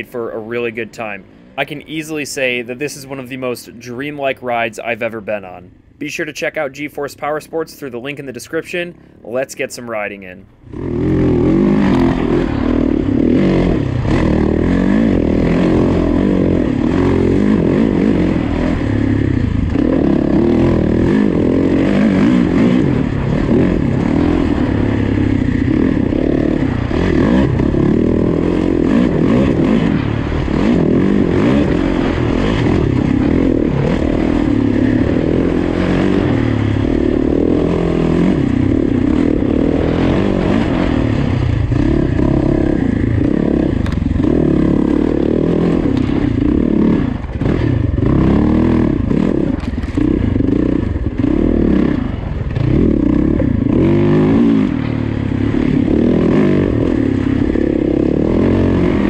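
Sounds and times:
motorcycle engine revving: 0.0s - 59.0s
suspension clatter: 43.1s - 45.2s, 49.1s - 51.2s.

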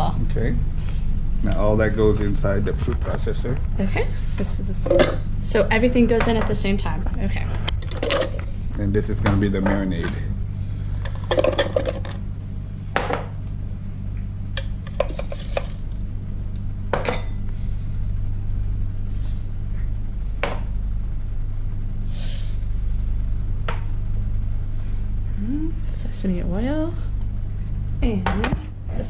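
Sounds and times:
steady low hum: 0.0s - 29.0s
glass bowls clinking: 11.0s - 12.2s, 16.9s - 17.4s
spoon scraping bowl: 14.9s - 15.8s.

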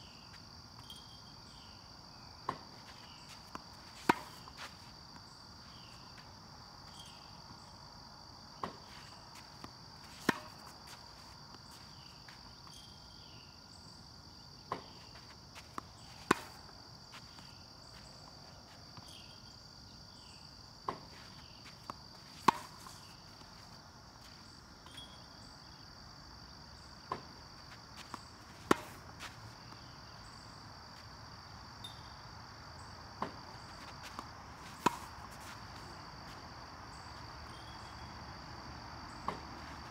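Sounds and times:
high insect trill: 0.0s - 39.9s
tennis racket hitting ball: 2.5s - 5.0s, 10.1s - 11.0s, 16.2s - 16.6s, 21.8s - 23.1s, 28.0s - 29.1s, 33.2s - 36.0s.

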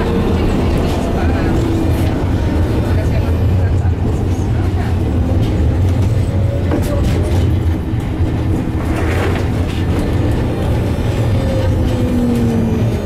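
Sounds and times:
tram wheels rumbling on rails: 0.0s - 13.0s.

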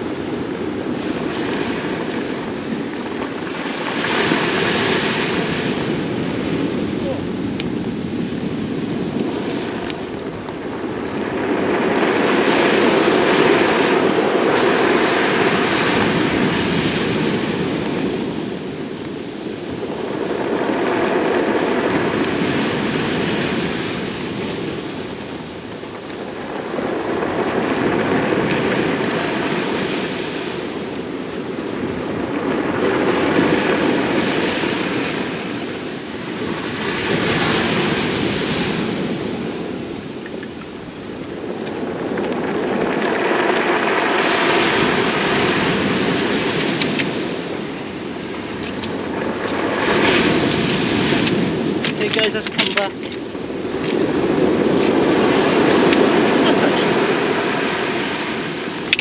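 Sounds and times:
waves breaking on pebble beach: 0.0s - 59.0s
wind noise: 0.0s - 59.0s.

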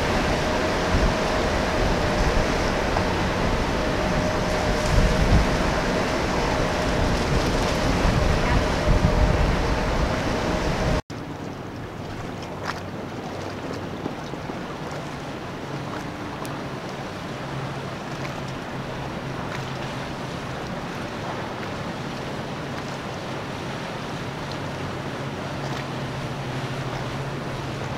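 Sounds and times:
boat engines droning: 0.0s - 27.9s
outboard motors whining: 0.0s - 27.9s
water washing: 0.0s - 27.9s
wind rumble on microphone: 0.0s - 27.9s.

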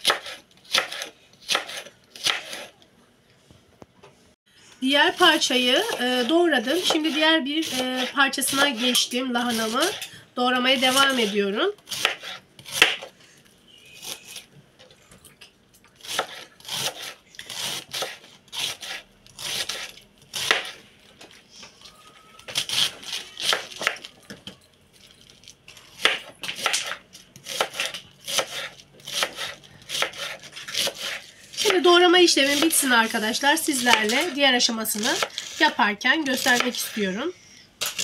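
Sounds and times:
knife slicing cabbage on board: 0.0s - 2.7s, 10.8s - 13.1s, 16.0s - 20.8s, 26.0s - 31.8s, 32.4s - 32.9s, 33.7s - 37.0s.

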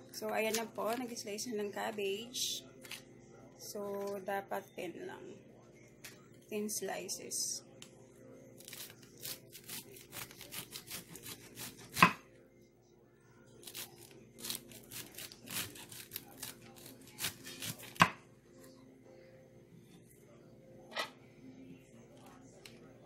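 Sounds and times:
knife slicing cabbage: 8.6s - 12.2s, 13.6s - 18.2s.

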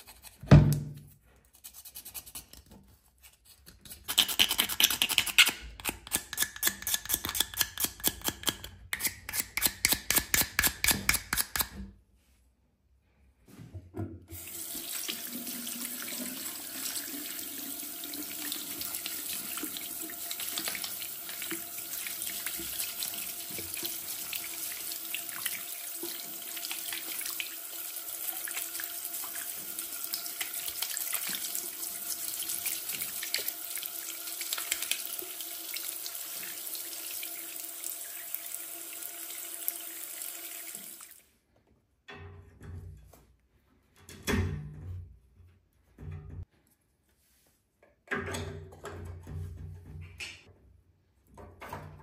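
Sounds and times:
toothbrush scrubbing plastic: 0.0s - 0.4s, 1.4s - 11.7s
tap water running into a basin: 14.3s - 41.2s.

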